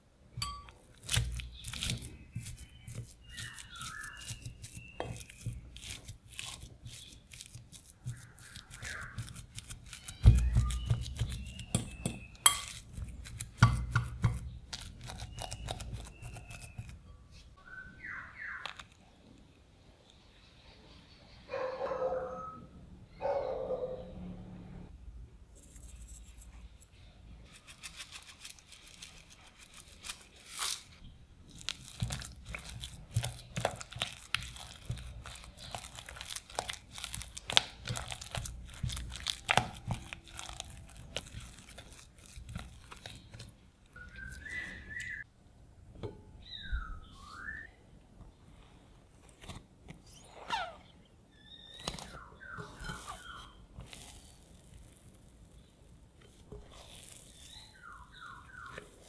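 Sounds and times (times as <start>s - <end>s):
spatula scraping in glass bowl: 0.4s - 17.0s, 52.6s - 54.4s
dough pulled from cloth: 0.8s - 13.6s, 27.5s - 45.2s, 51.7s - 59.0s
short squeaks: 50.0s - 53.6s.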